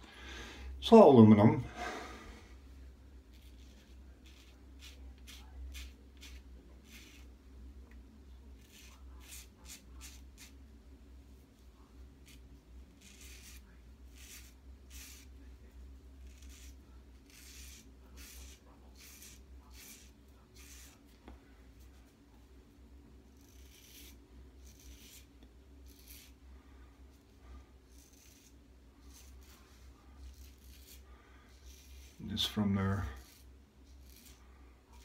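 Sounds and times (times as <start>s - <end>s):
razor scraping stubble: 3.3s - 7.3s, 8.6s - 10.6s, 12.2s - 15.4s, 16.2s - 21.2s, 23.3s - 26.4s, 27.8s - 35.0s.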